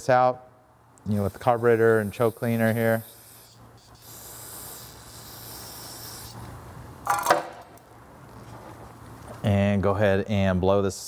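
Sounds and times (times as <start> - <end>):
aerosol spray hissing: 1.1 - 6.5.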